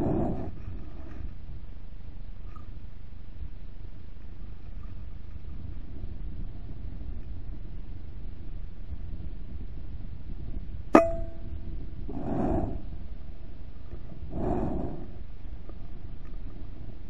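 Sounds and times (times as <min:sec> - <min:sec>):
breathy rushes of noise: 0:00.0 - 0:01.1, 0:12.1 - 0:13.0, 0:14.0 - 0:15.4
metallic ring: 0:11.0 - 0:11.5.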